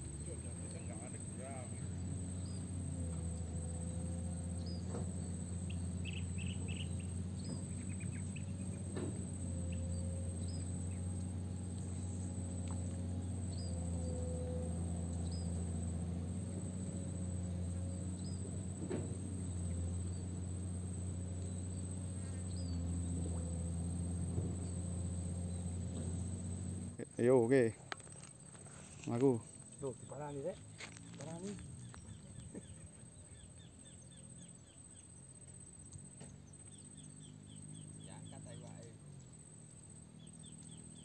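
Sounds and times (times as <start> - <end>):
low hum: 0.0 - 27.0
high insect whine: 0.0 - 41.0
bird chirping: 0.2 - 26.7, 28.0 - 41.0.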